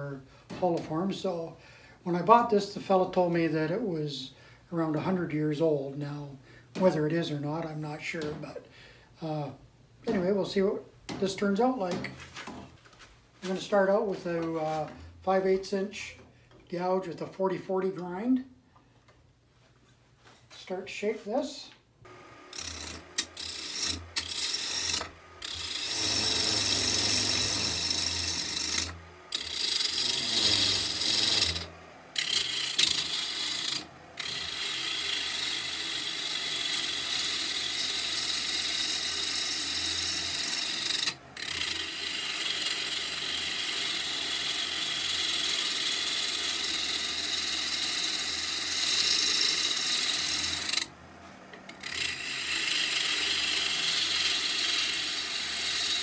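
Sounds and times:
low motor hum: 0:22.1 - 0:33.0
gouge cutting wood on lathe: 0:22.1 - 0:56.0.

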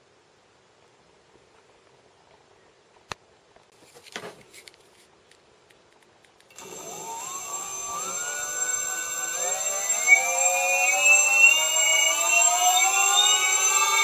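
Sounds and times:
electric motor whine rising: 0:06.5 - 0:14.0
steady high-pitched tone: 0:06.5 - 0:14.0.

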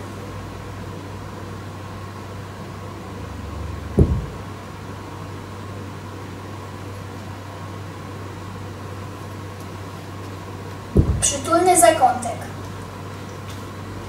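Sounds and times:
low electrical hum and hiss: 0:00.0 - 0:14.0
dull thump: 0:04.0 - 0:04.5, 0:10.9 - 0:11.3.

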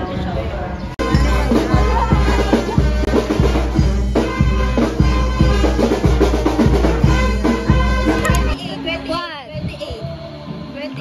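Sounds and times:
bass: 0:00.0 - 0:11.0
drum kit beat: 0:01.0 - 0:09.0.

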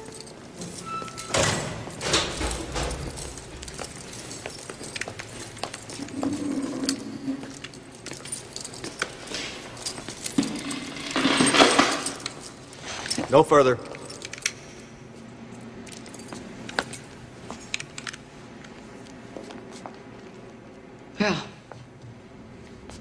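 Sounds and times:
metal jingling and clinking: 0:00.0 - 0:18.2
knocks and steps: 0:00.0 - 0:20.8.

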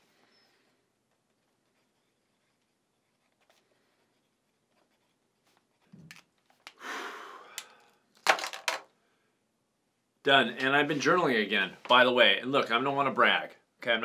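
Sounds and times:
pen scratching on paper: 0:01.1 - 0:06.7
eyeglasses clattering on wooden desk: 0:08.2 - 0:08.9.

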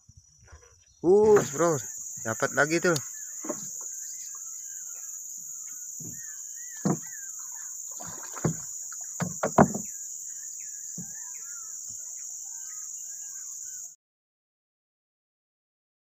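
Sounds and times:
high insect drone: 0:00.0 - 0:14.0
bird chirps: 0:00.7 - 0:14.0
hollow knocks against wooden boat: 0:03.4 - 0:03.9, 0:06.0 - 0:06.2, 0:06.8 - 0:07.2, 0:08.0 - 0:10.0, 0:11.0 - 0:11.2.

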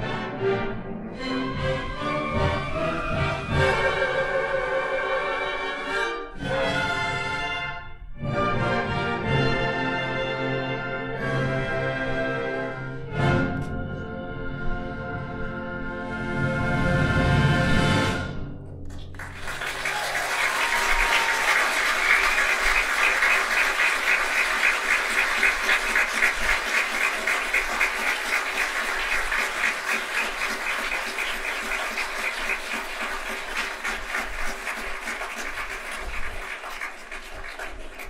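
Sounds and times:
audience applauding: 0:18.9 - 0:38.0.

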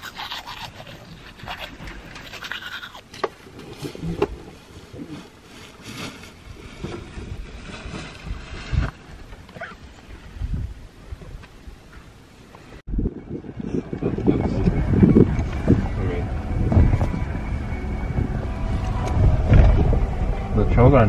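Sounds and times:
toothbrush scrubbing teeth: 0:00.0 - 0:03.0
wind buffeting microphone: 0:03.8 - 0:11.9, 0:12.9 - 0:21.0.

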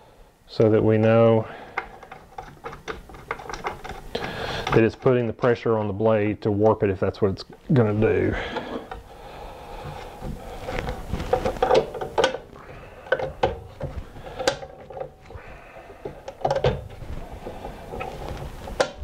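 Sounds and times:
metal clicks and knocks: 0:01.7 - 0:06.0, 0:09.8 - 0:15.3, 0:16.0 - 0:19.0.

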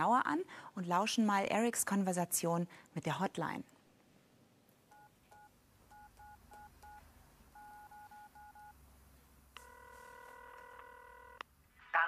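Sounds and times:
telephone keypad beeps: 0:04.9 - 0:07.0, 0:07.6 - 0:08.7
telephone ringing tone: 0:07.6 - 0:08.8, 0:09.6 - 0:11.4.

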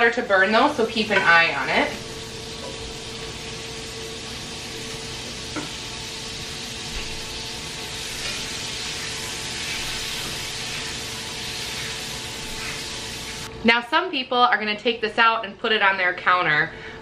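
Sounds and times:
butter sizzling in a skillet: 0:00.0 - 0:13.5.

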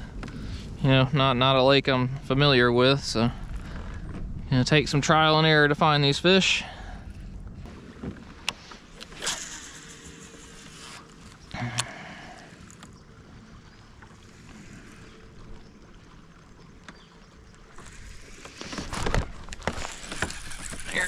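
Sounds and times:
fishing gear clicks and knocks: 0:17.7 - 0:21.0.

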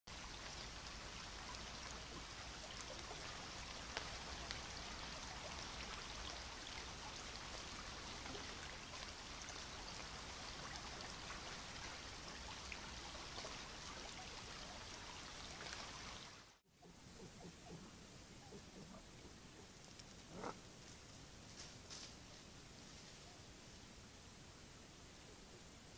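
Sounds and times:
faint steady hiss: 0:00.1 - 0:25.9
tiny ticks: 0:02.7 - 0:04.8, 0:19.8 - 0:20.2.

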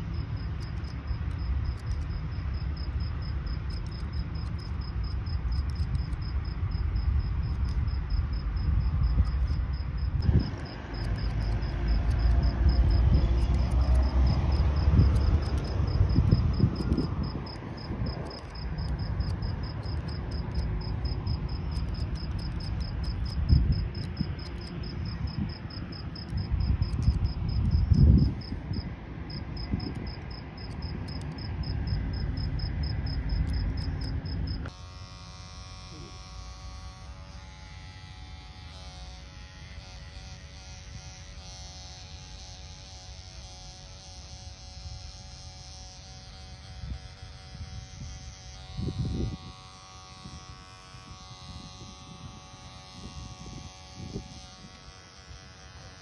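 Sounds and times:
cricket chirping: 0:00.0 - 0:34.7
scissors snipping hair: 0:00.4 - 0:02.2, 0:10.2 - 0:27.7.

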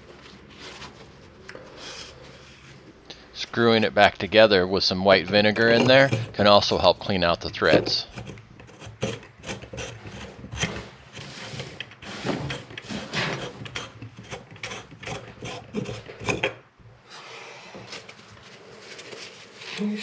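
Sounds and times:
metal threads scraping and grinding: 0:03.4 - 0:16.6.

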